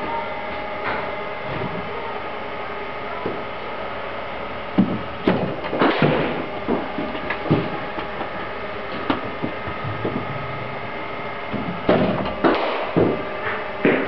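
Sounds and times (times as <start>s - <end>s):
mechanical hum: 0.0s - 14.0s
thuds and clatters: 4.8s - 7.8s, 9.0s - 10.5s.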